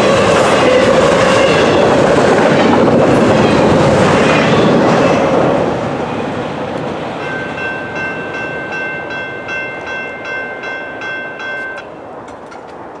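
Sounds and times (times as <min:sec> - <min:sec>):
freight train rumble: 0:00.0 - 0:13.0
railroad crossing bell ringing: 0:07.0 - 0:12.2.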